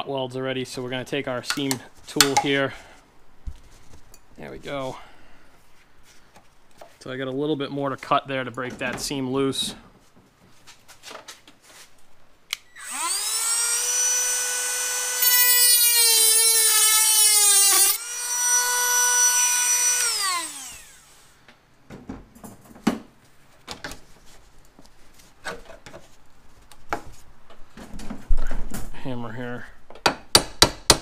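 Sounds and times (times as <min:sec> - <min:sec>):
rotary tool high whine: 0:12.7 - 0:21.3.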